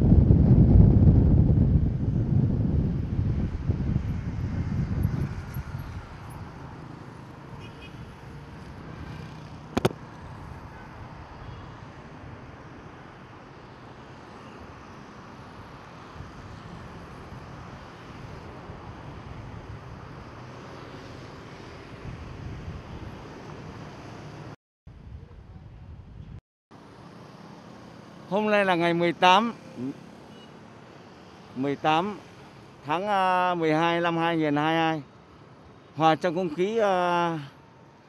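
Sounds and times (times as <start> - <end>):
wind buffeting microphone: 0.0 - 6.8
city street traffic: 0.0 - 38.0.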